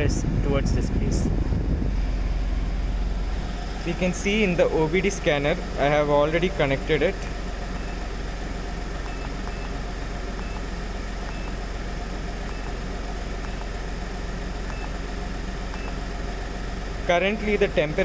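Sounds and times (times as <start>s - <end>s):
diesel engine idling: 0.0s - 18.0s
faint short beeps: 11.3s - 11.6s, 14.7s - 15.0s, 15.8s - 16.0s.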